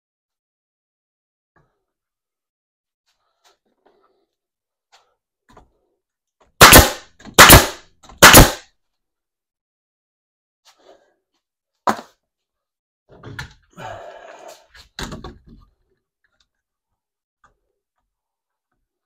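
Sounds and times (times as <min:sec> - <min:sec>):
nail gun shot: 0:06.6 - 0:08.6.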